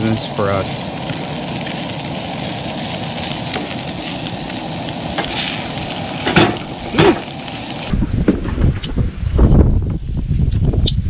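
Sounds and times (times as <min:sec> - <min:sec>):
food sizzling in a frying pan: 0:00.0 - 0:07.9.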